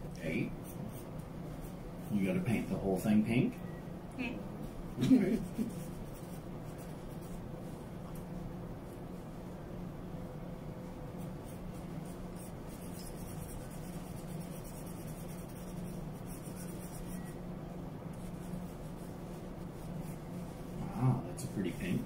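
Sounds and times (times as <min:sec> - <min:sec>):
steady low hum: 0:00.0 - 0:22.0
paintbrush strokes rubbing: 0:05.4 - 0:08.3, 0:11.1 - 0:17.4, 0:18.1 - 0:22.0.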